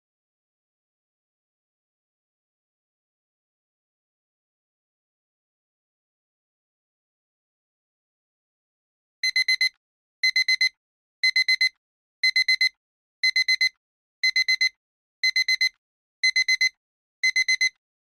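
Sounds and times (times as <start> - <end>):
timer alarm high beeps: 9.2 - 17.8.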